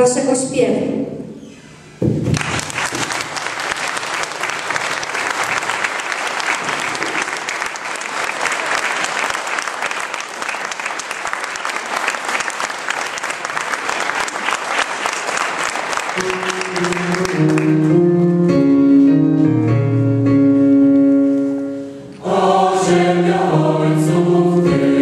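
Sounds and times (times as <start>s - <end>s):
audience applauding: 2.2s - 18.0s.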